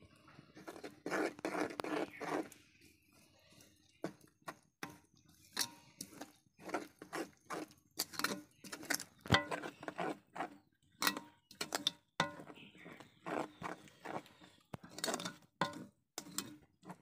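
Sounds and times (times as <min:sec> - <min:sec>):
metal spoon scraping metal pan: 0:00.6 - 0:02.6, 0:05.4 - 0:17.0.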